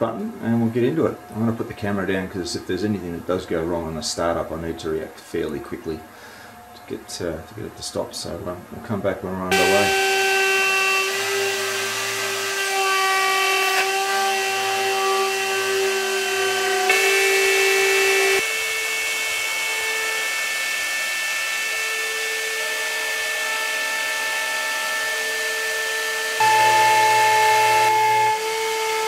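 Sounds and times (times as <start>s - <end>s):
bit cutting wood hiss: 9.5s - 29.0s
router spindle high whine: 9.5s - 29.0s.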